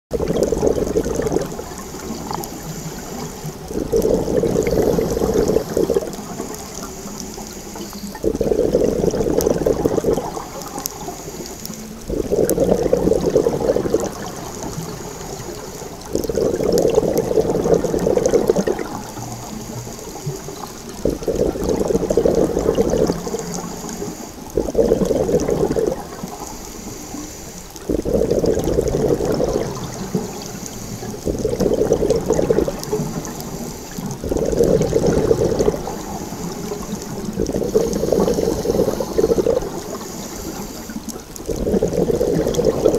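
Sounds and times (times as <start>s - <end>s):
exhaled bubbles underwater: 0.1s - 42.9s
regulator inhalation hiss: 1.8s - 3.6s, 4.5s - 8.2s, 10.3s - 12.0s, 23.0s - 24.5s, 26.4s - 27.8s, 29.9s - 31.2s, 32.9s - 34.1s, 35.7s - 41.3s.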